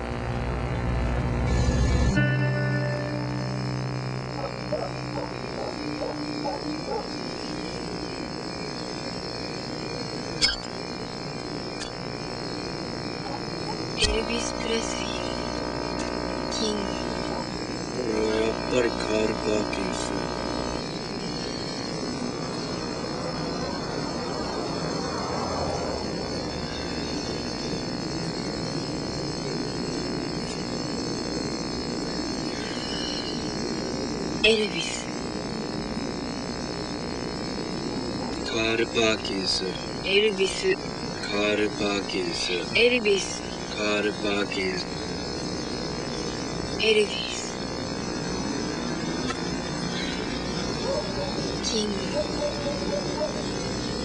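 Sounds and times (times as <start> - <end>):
high insect-like drone: 0.0 - 54.0
steady hum: 0.0 - 54.0
high-pitched trill: 1.3 - 6.5, 32.4 - 33.6.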